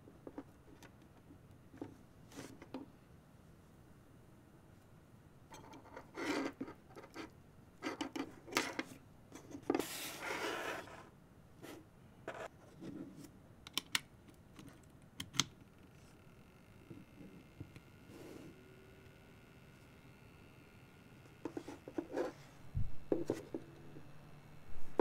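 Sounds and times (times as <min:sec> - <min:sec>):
cooling fan whine: 0:15.2 - 0:25.0.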